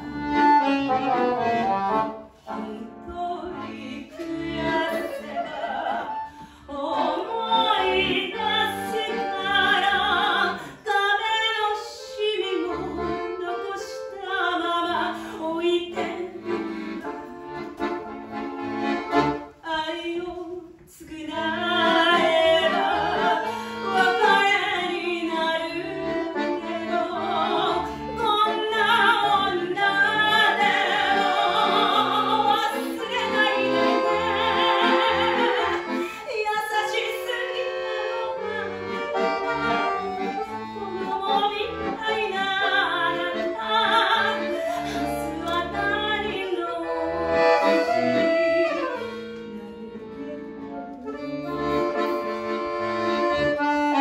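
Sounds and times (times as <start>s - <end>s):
accordion: 0.0s - 54.0s
soprano singing with vibrato: 2.7s - 16.4s, 19.6s - 26.0s, 26.6s - 38.8s, 40.8s - 46.9s.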